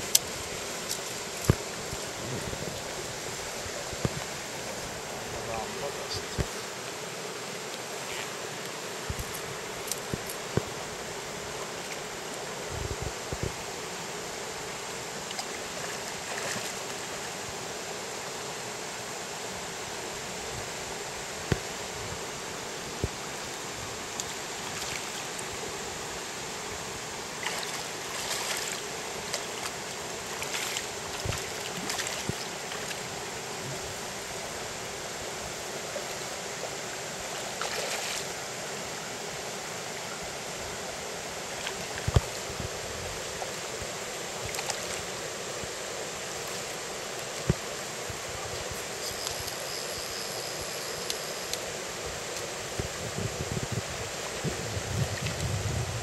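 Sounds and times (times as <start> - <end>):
stream water flowing: 0.0 - 56.0.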